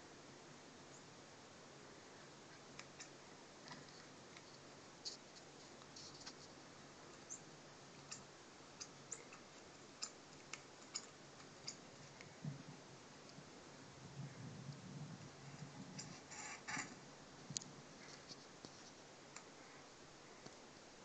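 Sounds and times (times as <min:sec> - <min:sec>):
faint sharp clicks: 0:18.6 - 0:19.5.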